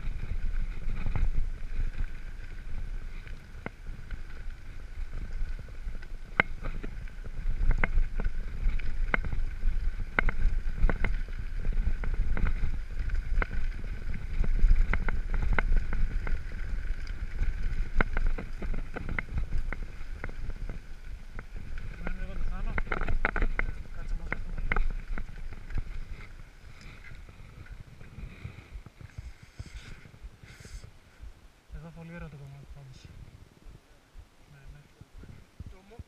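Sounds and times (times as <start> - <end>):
bike rattling over bumps: 0.0 - 31.0
wind rumble on microphone: 0.0 - 36.0.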